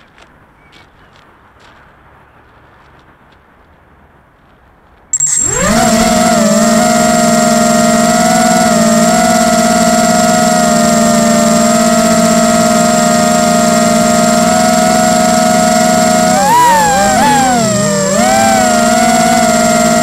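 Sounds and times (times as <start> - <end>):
drone motors whining: 5.2 - 20.0
thin high tone: 5.2 - 20.0.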